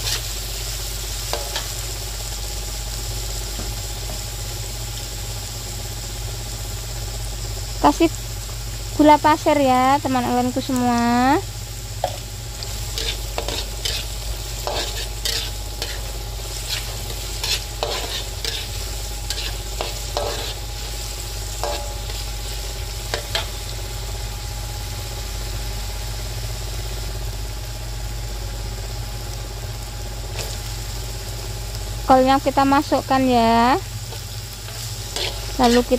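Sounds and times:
metal spatula scraping a wok: 0.0s - 0.4s, 12.0s - 23.6s, 34.1s - 35.9s
food sizzling in oil: 0.0s - 35.9s.

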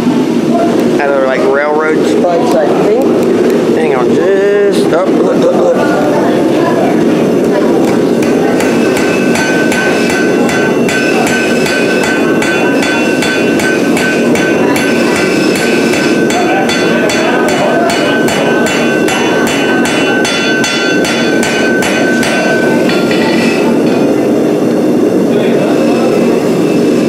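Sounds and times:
hammer striking hot steel: 7.8s - 24.2s
anvil ringing: 8.2s - 24.1s.

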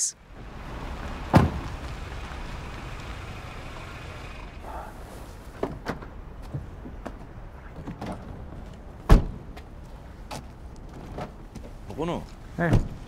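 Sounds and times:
rain hiss: 0.2s - 5.3s.

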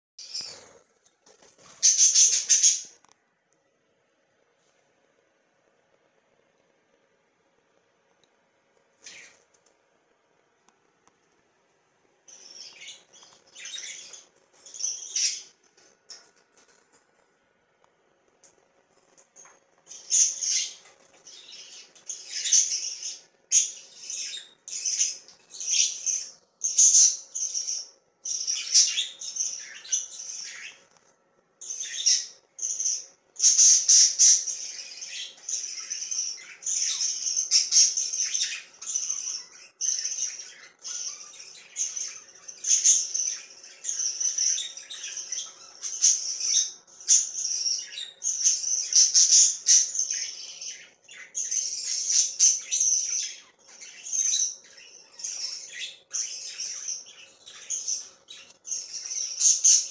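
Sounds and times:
budgerigars chirping and squawking: 0.2s - 0.8s, 1.6s - 3.0s, 9.0s - 9.4s, 12.3s - 16.7s, 19.1s - 30.9s, 31.6s - 59.9s.

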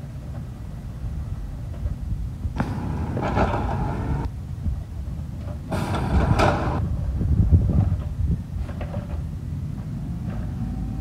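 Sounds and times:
garbage truck low rumble: 0.0s - 11.0s
cart rattling and dumping: 2.6s - 4.3s, 5.2s - 6.8s, 7.6s - 11.0s.

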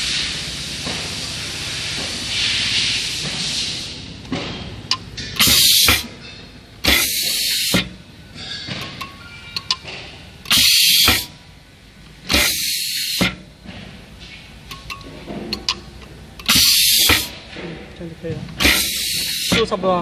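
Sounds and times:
sharp blasts of escaping air: 0.0s - 4.1s, 5.4s - 6.1s, 6.8s - 8.0s, 10.5s - 11.4s, 12.2s - 13.4s, 16.4s - 17.4s, 18.6s - 19.7s
compressed air hissing: 5.4s - 6.2s, 6.8s - 8.0s, 10.4s - 11.4s, 12.2s - 13.4s, 16.4s - 17.5s, 18.5s - 19.7s.

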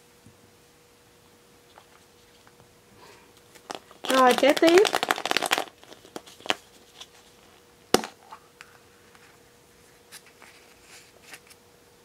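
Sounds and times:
plastic halves ticking and rustling: 3.5s - 6.6s
plastic egg snapping open: 3.5s - 7.1s.

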